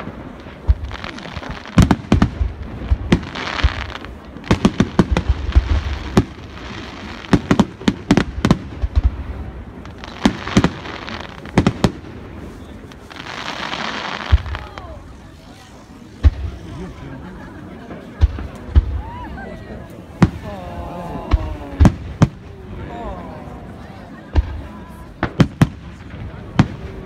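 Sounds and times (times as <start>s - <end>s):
firework hiss: 0.0s - 16.7s.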